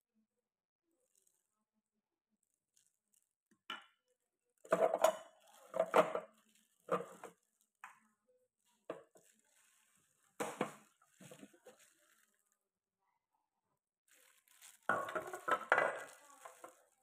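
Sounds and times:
plastic juicer parts clattering: 0:04.7 - 0:07.4, 0:14.8 - 0:17.0.

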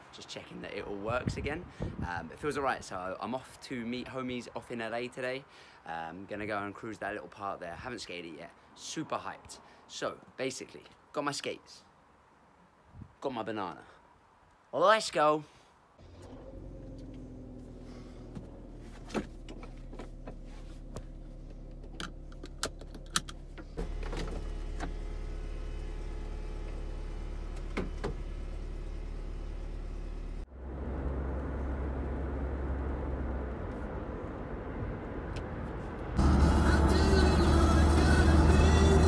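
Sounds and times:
road noise from driving: 0:00.0 - 0:11.1, 0:15.8 - 0:39.0
car engine humming: 0:16.0 - 0:39.0.

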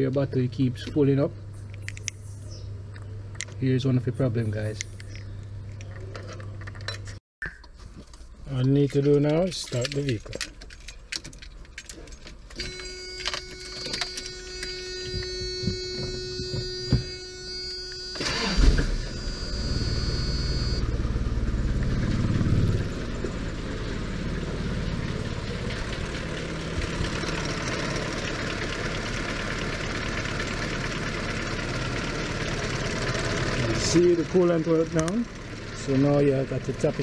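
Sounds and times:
keys jingling: 0:08.6 - 0:16.6
engine cranking and idling: 0:08.6 - 0:37.0
steady warning tone: 0:12.6 - 0:21.0.

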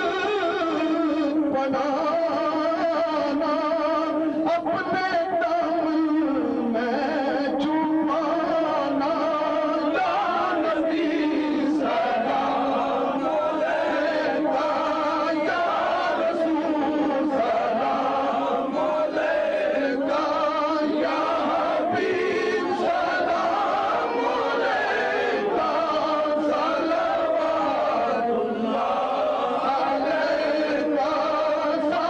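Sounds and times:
men chanting together: 0:09.6 - 0:32.0.

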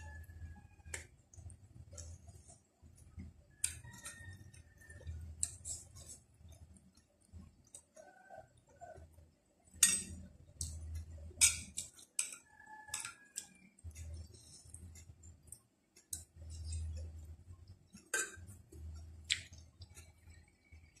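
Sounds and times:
chewing and mouth noises: 0:01.3 - 0:08.2, 0:10.6 - 0:21.0
cutlery clinking on a plate: 0:09.8 - 0:10.2, 0:11.4 - 0:13.4.

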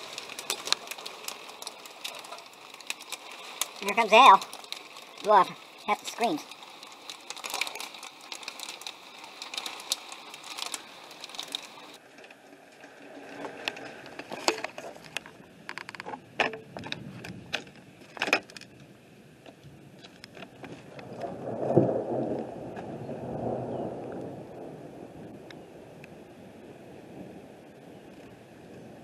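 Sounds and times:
rain ticking on a window: 0:00.0 - 0:12.4, 0:19.5 - 0:29.0
wind buffeting microphone: 0:19.6 - 0:29.0.

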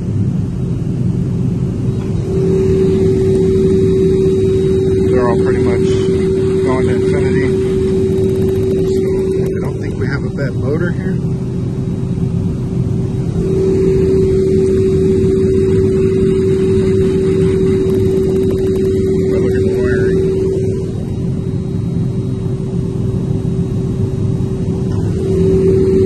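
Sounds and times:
low machinery rumble: 0:00.0 - 0:26.0
hand-cranked meter whining: 0:02.0 - 0:10.3, 0:13.2 - 0:21.3.

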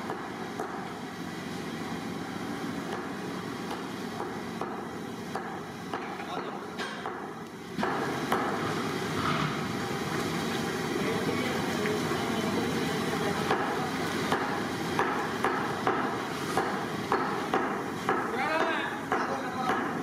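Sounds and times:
sharp knocks: 0:06.8 - 0:08.6.

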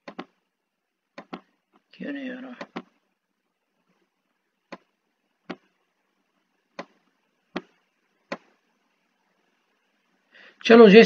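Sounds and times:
computer mouse clicks: 0:00.0 - 0:00.4, 0:01.2 - 0:01.5, 0:02.6 - 0:03.0, 0:04.7 - 0:05.7, 0:06.7 - 0:08.6
faint steady hiss: 0:00.0 - 0:11.0.

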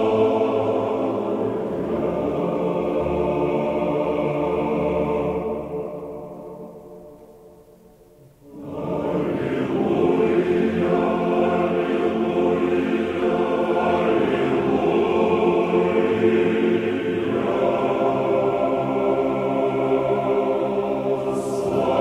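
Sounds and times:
choir singing chant: 0:00.0 - 0:07.8, 0:08.4 - 0:22.0.

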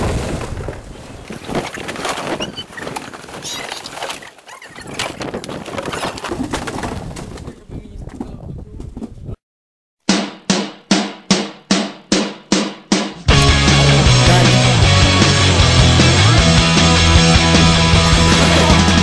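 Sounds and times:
cardboard boxes knocking and crumpling: 0:05.2 - 0:07.5.

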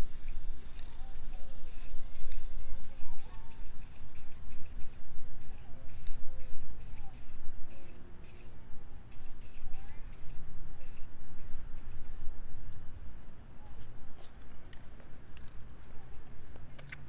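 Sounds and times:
spray can hissing: 0:00.0 - 0:08.5, 0:09.1 - 0:12.2.

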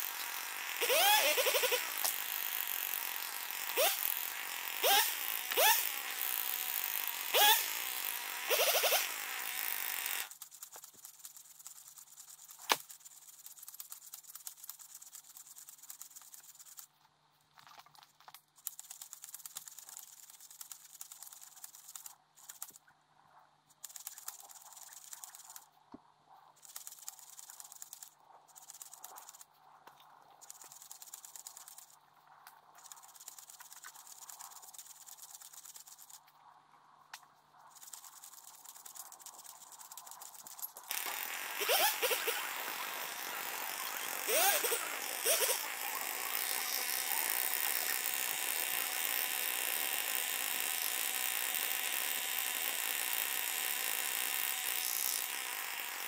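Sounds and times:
chainsaw revving: 0:00.0 - 0:10.3, 0:40.9 - 0:56.0
faint crackles and clicks: 0:10.2 - 0:41.3.

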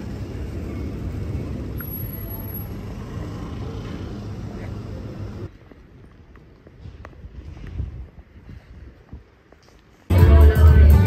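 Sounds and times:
city street traffic rumble: 0:00.0 - 0:11.0.

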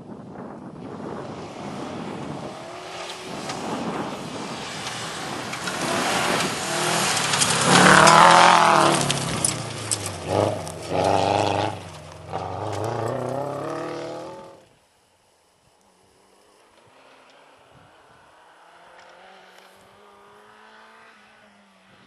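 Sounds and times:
rally car engine revving: 0:00.9 - 0:14.6.

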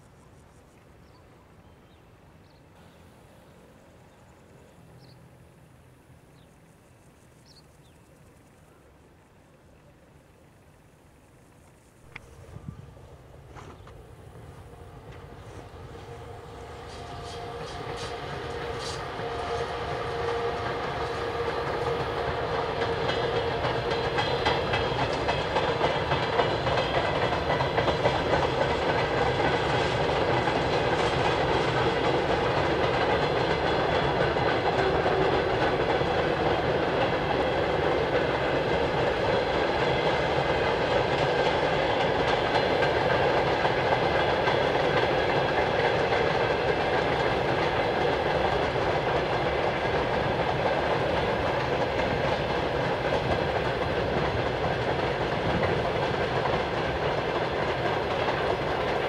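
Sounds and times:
electric locomotive hum: 0:00.0 - 0:59.0
freight wagons rolling on rails: 0:12.1 - 0:59.0.

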